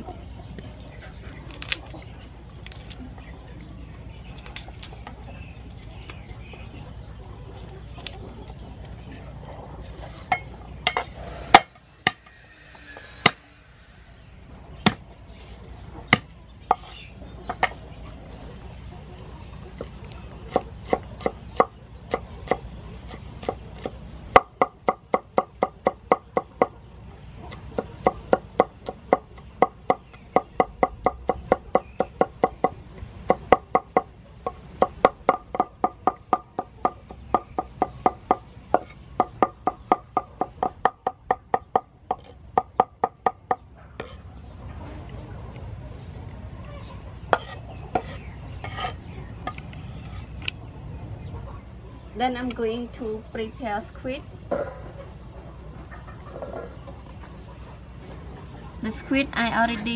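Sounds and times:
cleaver chopping on wooden board: 0:20.5 - 0:26.7.

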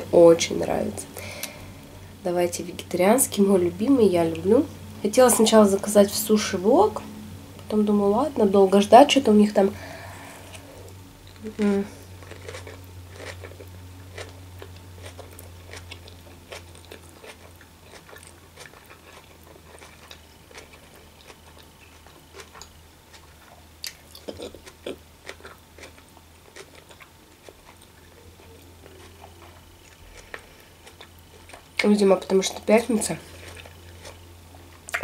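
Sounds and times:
low hum: 0:00.0 - 0:23.8
person chewing food: 0:12.0 - 0:31.8, 0:33.2 - 0:35.0.

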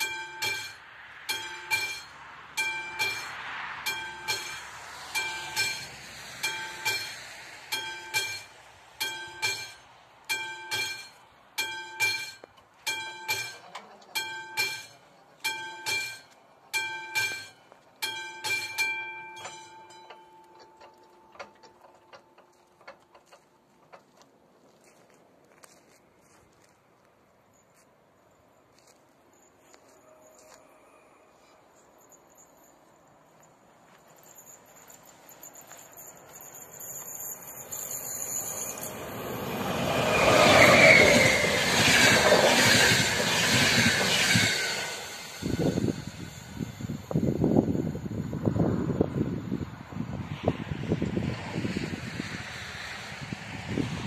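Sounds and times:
train wheel squeal: 0:00.0 - 0:09.8, 0:29.3 - 0:33.0, 0:34.2 - 0:49.6
level crossing bell clanging: 0:00.0 - 0:22.5, 0:31.8 - 0:41.6
passenger train passing: 0:00.0 - 0:22.9, 0:29.7 - 0:33.3, 0:36.7 - 0:54.0.

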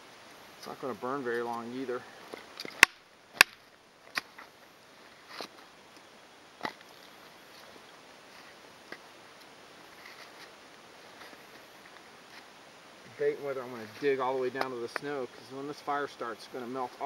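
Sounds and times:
wood splitting cracks: 0:02.6 - 0:04.4.

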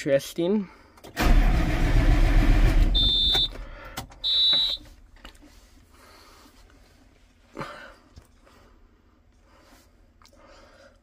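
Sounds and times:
tractor starter cranking engine: 0:01.0 - 0:04.2
warning buzzer beeps: 0:02.9 - 0:03.6, 0:04.2 - 0:04.9.

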